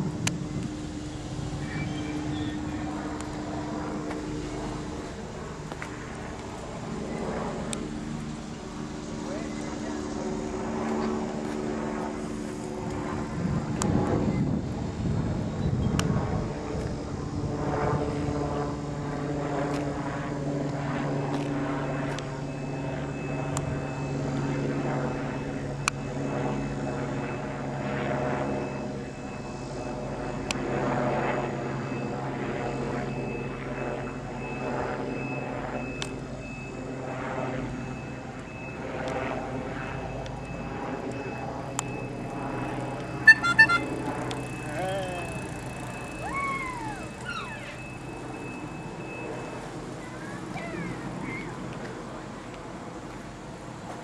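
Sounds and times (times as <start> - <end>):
engine drone: 0.0 - 54.0
thin high whine: 39.9 - 49.6.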